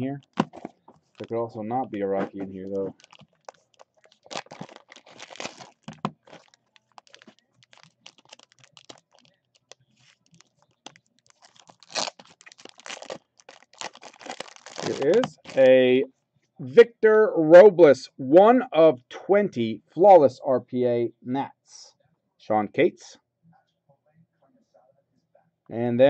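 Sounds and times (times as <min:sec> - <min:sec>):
plastic wrapping crinkling and tearing: 0:02.2 - 0:15.8.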